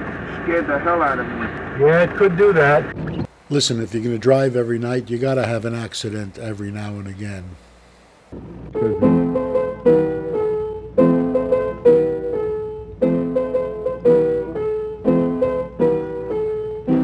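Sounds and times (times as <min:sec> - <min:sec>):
piano chords: 0:08.4 - 0:17.0.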